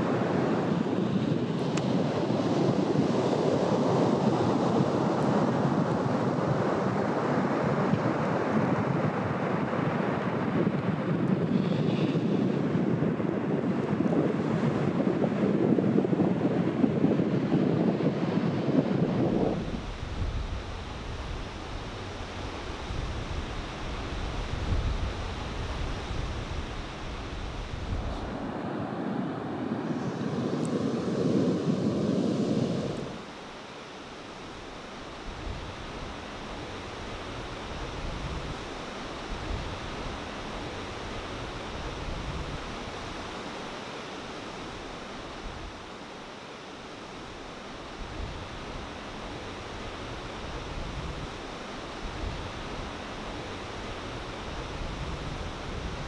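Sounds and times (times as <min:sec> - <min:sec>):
muffled rush of surf: 0:00.0 - 0:56.0
wind on microphone: 0:00.0 - 0:56.0.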